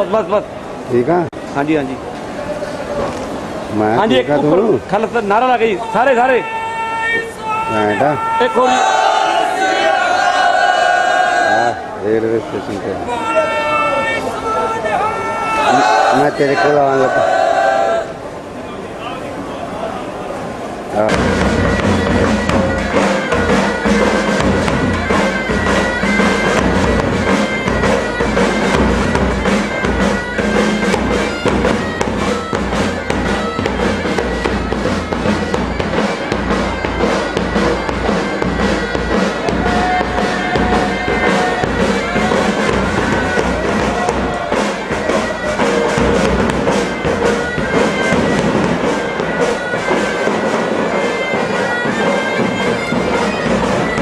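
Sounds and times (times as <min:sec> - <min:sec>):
drums beating: 0:03.3 - 0:11.9, 0:12.6 - 0:18.3, 0:20.6 - 0:54.0
bagpipes playing melody: 0:21.1 - 0:54.0.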